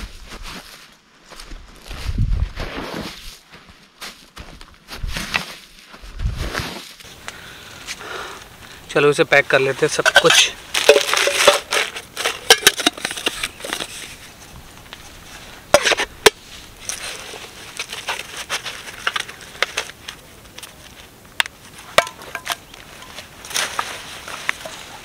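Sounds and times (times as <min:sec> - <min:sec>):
mug and bottles knocking: 0:10.0 - 0:13.4
plastic bag crinkling: 0:10.2 - 0:13.2.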